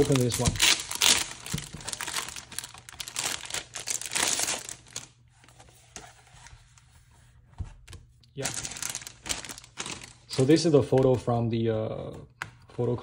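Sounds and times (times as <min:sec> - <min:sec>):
plastic wrapping crinkling: 0:00.0 - 0:05.2, 0:08.4 - 0:11.1.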